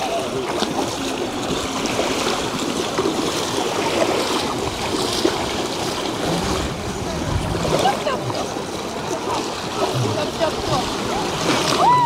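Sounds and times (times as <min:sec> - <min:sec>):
water rushing and splashing: 0:00.0 - 0:12.0.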